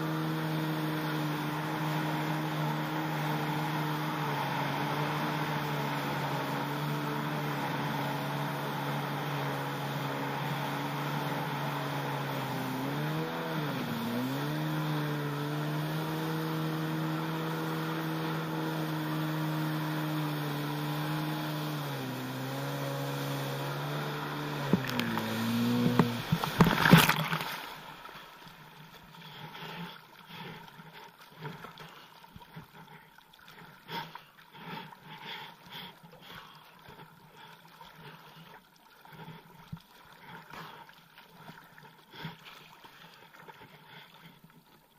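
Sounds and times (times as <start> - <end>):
jet ski engine running: 0.0 - 28.0
water sloshing and lapping: 0.0 - 44.9
loud splash: 23.2 - 28.5.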